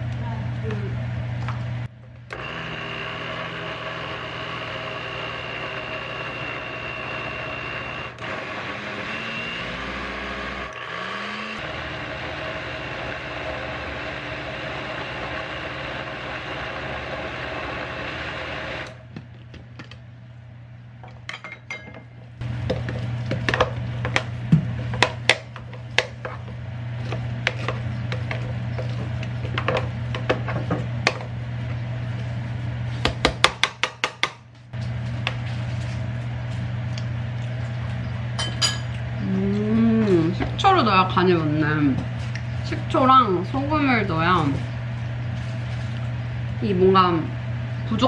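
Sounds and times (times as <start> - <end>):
blender running: 2.3 - 19.1, 22.4 - 32.6
spatula scraping plastic jar: 25.6 - 30.7.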